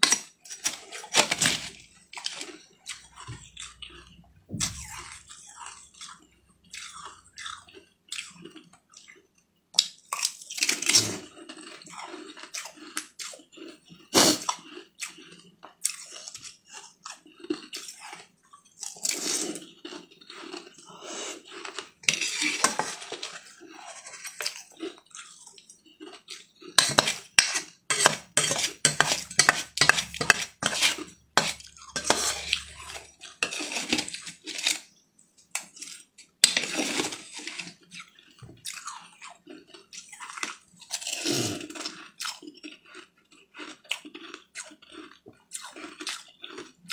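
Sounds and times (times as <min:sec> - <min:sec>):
crunchy chewing: 0:00.0 - 0:46.9
metal spoon scraping steel bowl: 0:22.0 - 0:24.5, 0:26.8 - 0:35.0.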